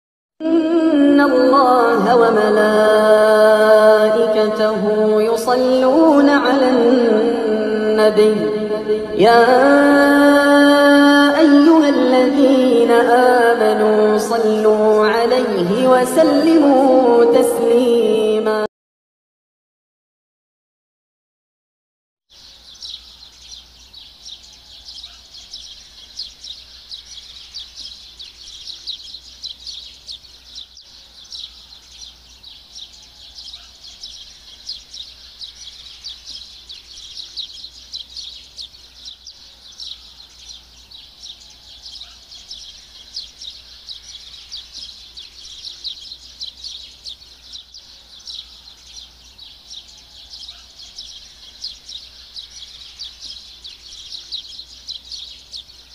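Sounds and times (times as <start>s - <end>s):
small birds chirping: 22.3s - 55.9s.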